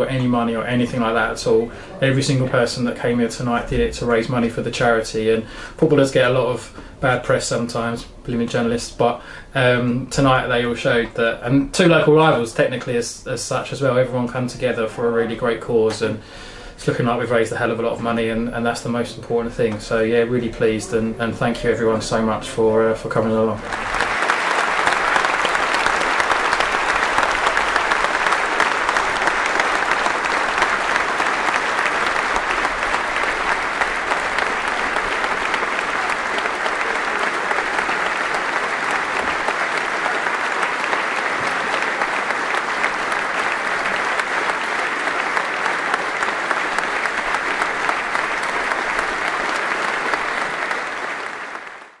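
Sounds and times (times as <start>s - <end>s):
stadium crowd applauding: 0.0s - 5.0s, 23.5s - 52.0s.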